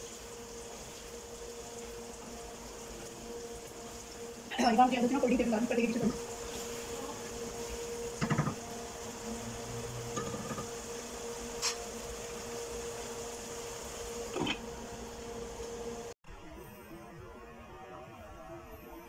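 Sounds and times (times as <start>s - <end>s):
steady mechanical hum: 0.0s - 16.2s
wooden spoon knocking metal pot: 8.2s - 8.6s.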